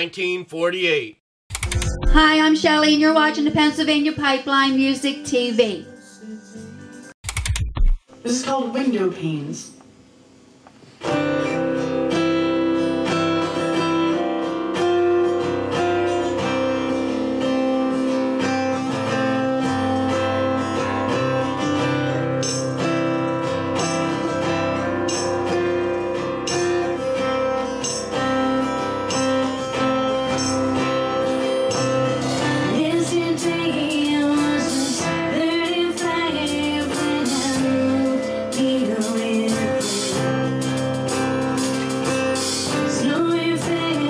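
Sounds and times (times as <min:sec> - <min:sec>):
acoustic guitar strumming: 0:11.0 - 0:44.0
electric guitars: 0:11.0 - 0:44.0
drums: 0:18.1 - 0:44.0.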